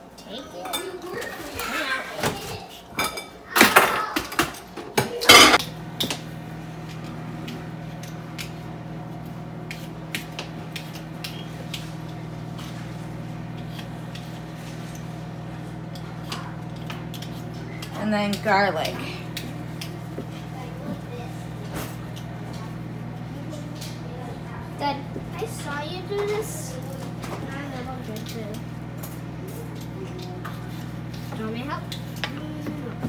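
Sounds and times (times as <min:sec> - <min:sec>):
microwave oven humming: 0:00.0 - 0:33.0
dishes and utensils clattering: 0:00.3 - 0:05.6.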